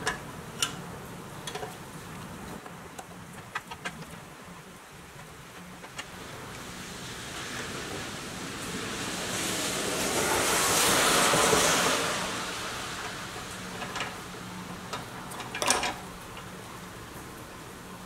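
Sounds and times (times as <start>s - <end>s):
small metal clicks: 0.0s - 4.2s.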